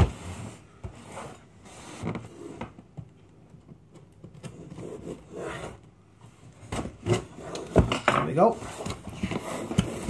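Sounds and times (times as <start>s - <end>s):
cardboard box scraping and creaking: 8.4s - 10.0s.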